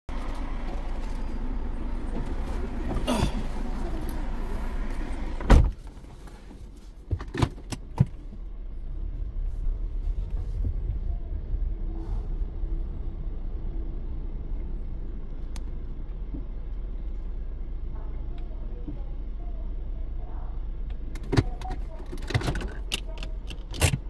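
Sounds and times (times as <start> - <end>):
car engine idling: 0.1 - 7.1, 7.7 - 24.0
door thump: 5.4 - 5.8.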